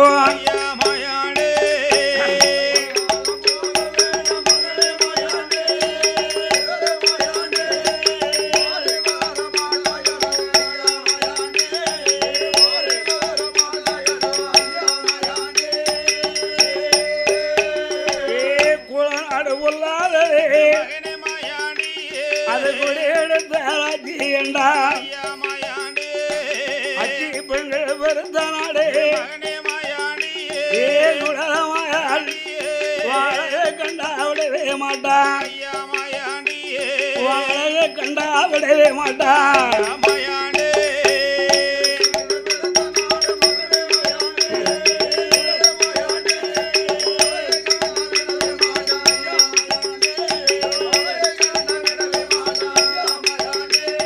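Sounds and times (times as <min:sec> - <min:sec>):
drumming: 0:00.0 - 0:54.0
rapid jingling percussion: 0:00.0 - 0:54.0
held instrumental melody: 0:39.2 - 0:54.0.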